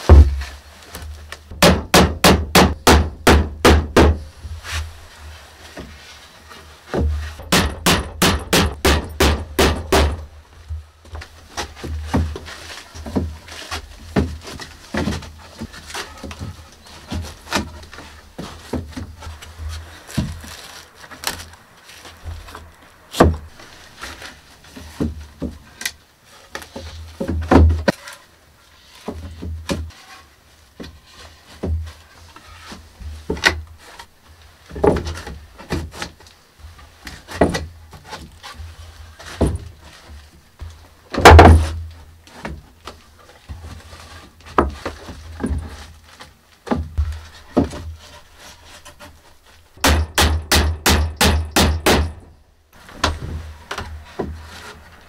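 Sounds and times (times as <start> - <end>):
planks knocking and thudding: 0.0 - 0.5, 1.5 - 4.2, 6.9 - 10.3, 27.2 - 27.9, 41.1 - 41.8
hammer blows on wooden boards: 1.5 - 4.3, 7.0 - 10.4, 49.8 - 52.3.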